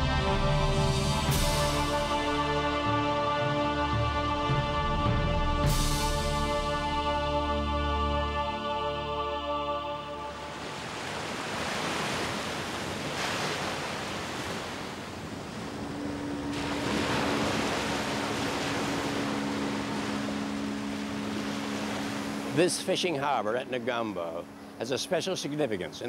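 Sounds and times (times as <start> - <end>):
motorboat engine hum: 0.0 - 26.0
surf washing onto beach: 10.4 - 24.0.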